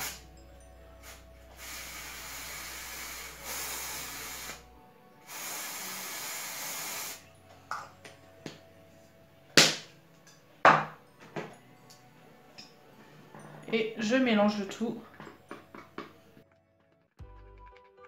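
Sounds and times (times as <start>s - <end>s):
aerosol spray hissing: 0.0s - 0.3s, 1.0s - 7.3s.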